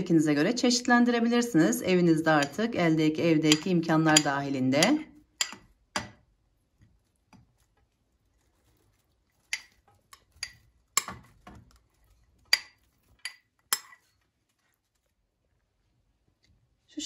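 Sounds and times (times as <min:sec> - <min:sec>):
spoon clinking against a bowl: 0:02.3 - 0:02.8, 0:03.5 - 0:05.7, 0:12.5 - 0:14.1.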